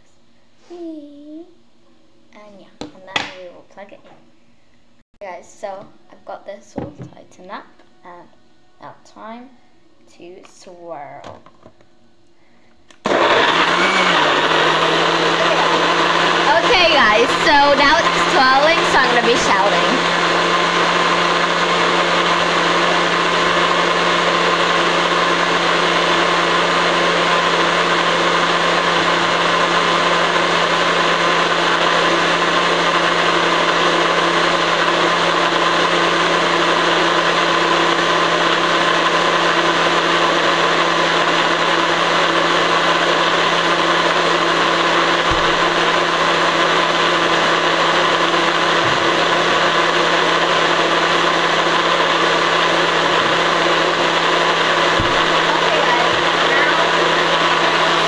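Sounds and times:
electric blender running: 0:13.0 - 0:58.0.

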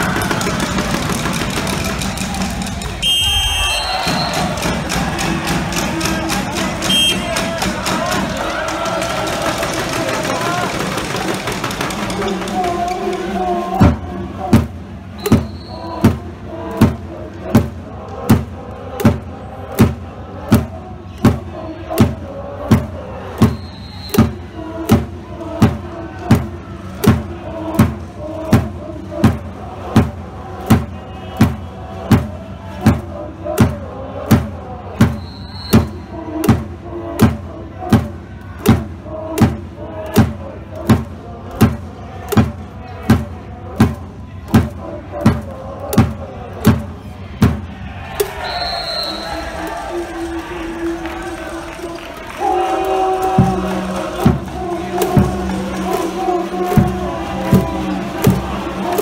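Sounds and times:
drum beating steadily: 0:00.0 - 0:48.4, 0:52.4 - 0:59.0
crowd chanting: 0:00.0 - 0:59.0
short high whistle: 0:03.0 - 0:04.5, 0:48.3 - 0:49.4.

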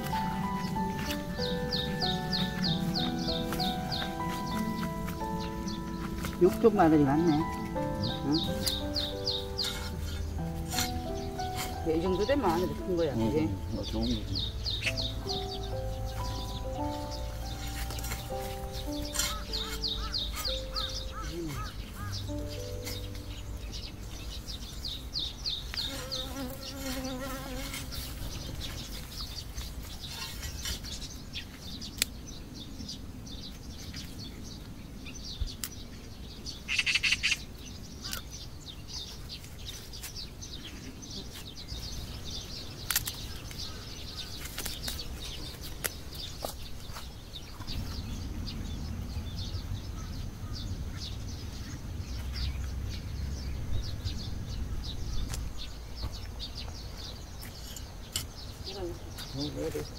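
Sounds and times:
insects buzzing: 0:00.0 - 0:30.3
dry stalks rustling: 0:00.0 - 0:32.3, 0:38.0 - 0:49.0
small birds chirping: 0:00.0 - 0:59.9
pruning shears snipping: 0:06.0 - 0:13.2, 0:16.1 - 0:23.3, 0:31.9 - 0:32.2, 0:42.8 - 0:43.6, 0:44.3 - 0:46.6.

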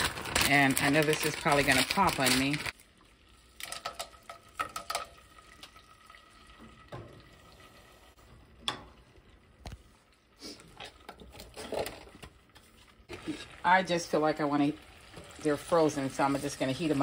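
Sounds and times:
peas sizzling in hot oil: 0:12.9 - 0:17.0.

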